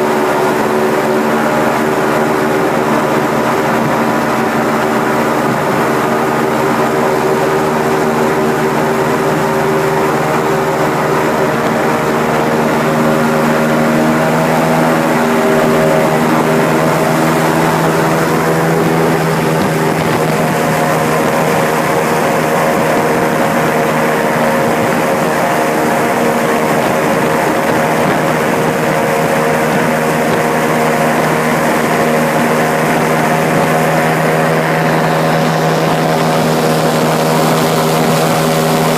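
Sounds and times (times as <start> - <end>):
airboat engine drone: 0.0 - 38.9
wind on microphone: 0.0 - 38.9.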